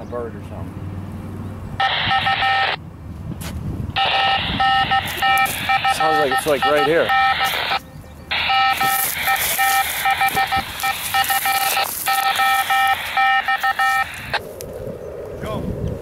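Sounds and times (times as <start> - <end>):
radio receiver pulsing beep tone: 1.8 - 2.8, 4.0 - 14.4.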